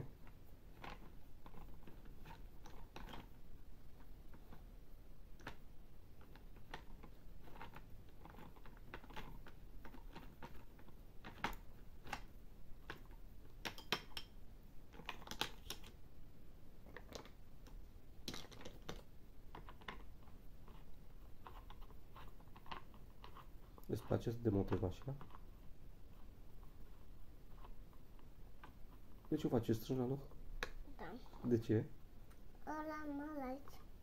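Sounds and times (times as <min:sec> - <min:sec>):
plastic clicks and clatter: 0:00.0 - 0:03.4, 0:05.4 - 0:16.0, 0:16.8 - 0:25.5.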